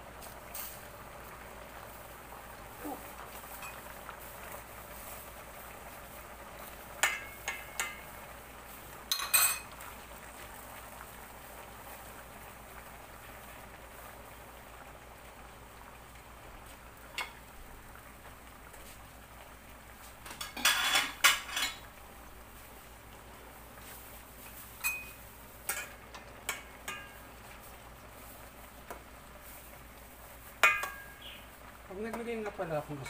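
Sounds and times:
faint steady hiss: 0.0s - 33.0s
metal spoon clinking on pot: 7.0s - 8.0s, 9.1s - 9.7s, 24.8s - 25.9s, 26.5s - 27.2s, 30.6s - 31.2s.

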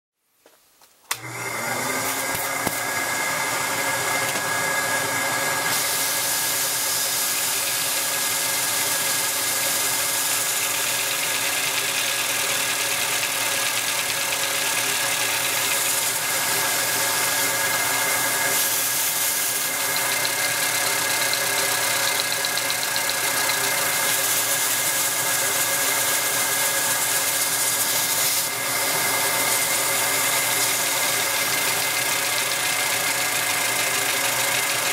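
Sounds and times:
hiss of gas: 5.7s - 7.6s.

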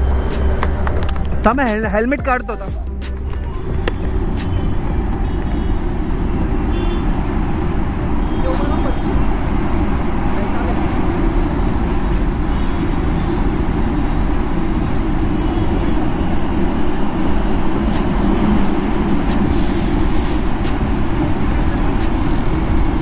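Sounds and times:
road traffic rumble: 0.0s - 23.0s
brief hiss: 19.4s - 20.8s.

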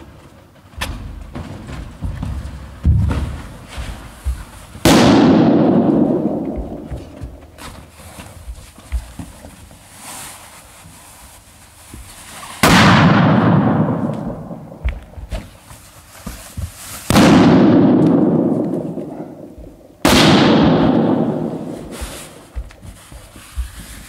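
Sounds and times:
balloons rubbing and knocking: 6.6s - 12.6s, 15.0s - 17.2s, 21.5s - 24.0s.

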